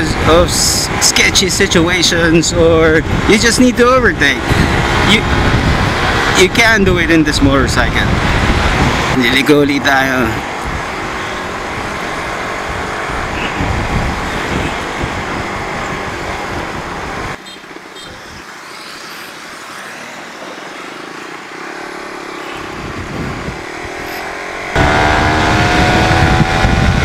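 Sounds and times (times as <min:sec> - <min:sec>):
wind and road rush: 0:00.0 - 0:27.0
motorcycle engine revving: 0:10.4 - 0:17.4, 0:19.7 - 0:27.0.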